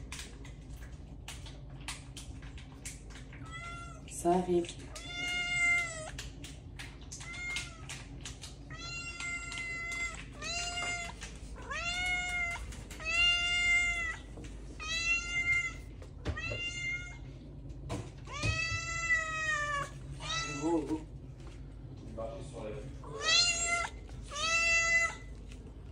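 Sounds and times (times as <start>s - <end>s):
cat meowing: 4.9s - 6.2s, 7.2s - 8.0s, 8.7s - 17.3s, 18.3s - 21.0s, 23.1s - 25.3s.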